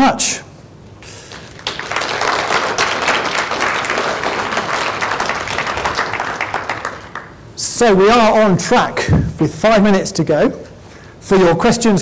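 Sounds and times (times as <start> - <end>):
audience applauding: 1.3 - 7.5.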